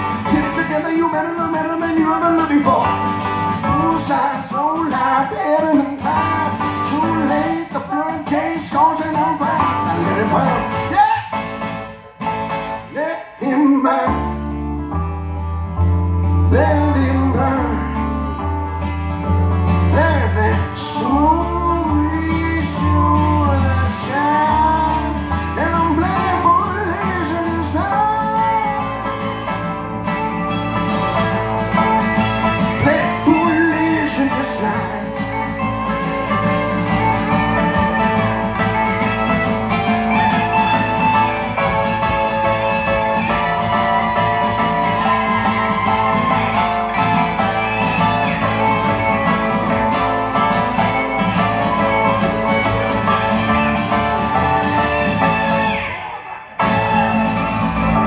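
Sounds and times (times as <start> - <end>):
pedal steel guitar: 0.0 - 13.0, 14.0 - 58.0
acoustic guitar: 0.0 - 58.0
keyboard: 0.0 - 58.0
deep bass: 14.1 - 55.8.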